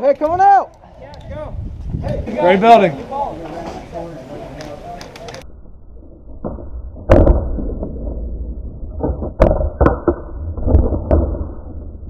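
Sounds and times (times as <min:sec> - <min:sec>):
muffled wind rumble: 0:00.8 - 0:02.7.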